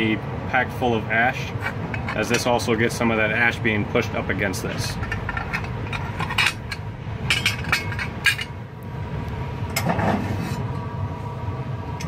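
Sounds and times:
steady low hum: 0.0s - 12.0s
metal plates clinking and scraping: 1.6s - 2.5s, 4.7s - 8.6s, 9.7s - 10.7s.

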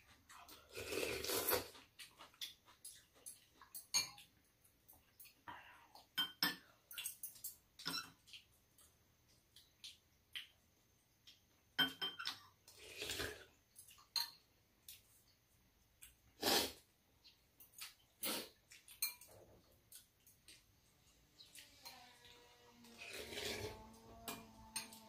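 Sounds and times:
utensils clinking against bowls: 2.8s - 4.3s, 6.1s - 8.2s, 11.8s - 12.5s, 13.9s - 14.5s, 18.2s - 19.4s, 21.6s - 25.0s.

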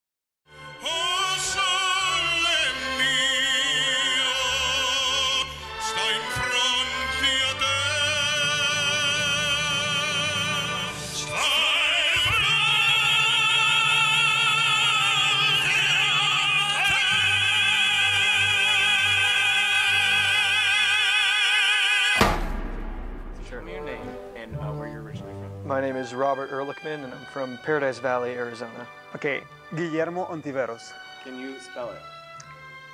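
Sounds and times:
operatic tenors singing: 0.6s - 22.4s
low accompaniment: 22.2s - 30.6s.

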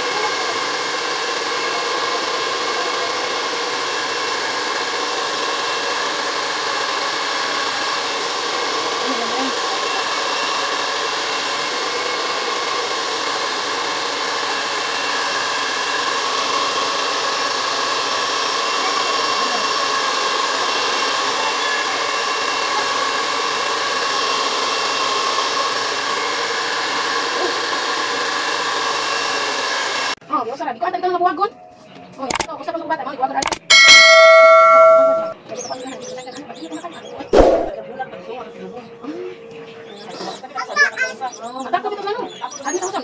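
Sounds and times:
hair dryer blowing: 0.0s - 30.2s.

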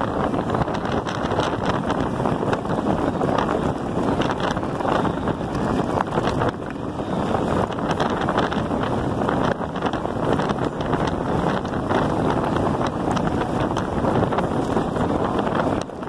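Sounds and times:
wind rushing over microphone: 0.0s - 16.0s
tyres crunching on gravel: 1.0s - 9.6s.

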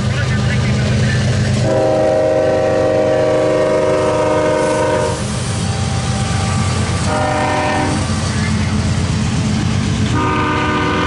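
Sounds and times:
diesel engines rumbling: 0.0s - 11.0s
train wheels passing: 0.0s - 11.0s
locomotive air horn blasts: 1.6s - 5.2s, 7.0s - 8.0s, 10.1s - 11.0s.

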